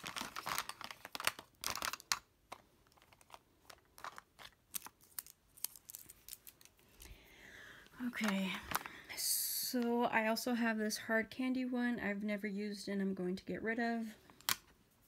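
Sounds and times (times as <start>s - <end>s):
rustling: 0.0s - 7.3s
plastic compacts clacking: 0.5s - 6.1s.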